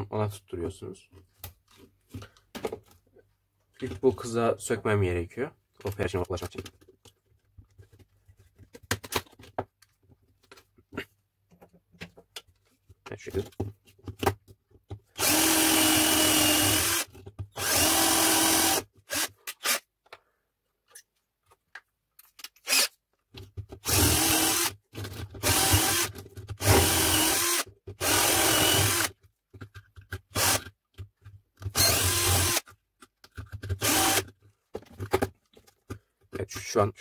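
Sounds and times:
cordless drill drilling metal: 15.2s - 19.8s, 22.6s - 22.9s, 23.8s - 24.8s, 25.4s - 29.1s, 30.3s - 30.6s, 31.7s - 32.6s, 33.8s - 34.3s.

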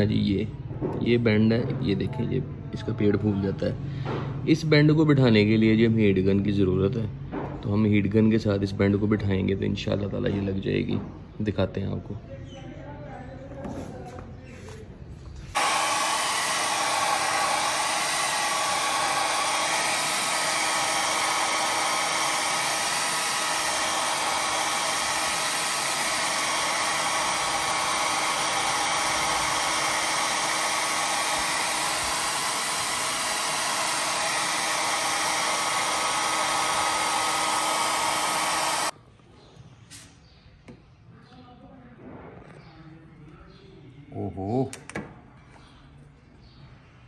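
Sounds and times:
hair dryer running: 15.5s - 39.0s.

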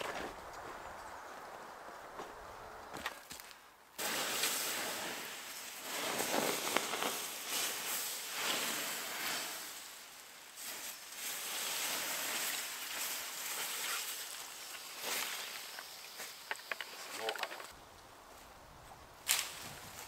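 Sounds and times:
water splashing on embers: 4.0s - 17.8s.

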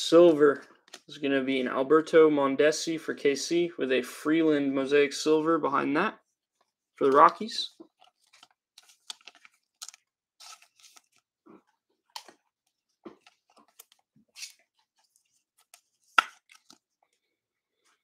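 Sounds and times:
plastic card holder rustling: 7.0s - 11.2s, 13.2s - 17.0s.

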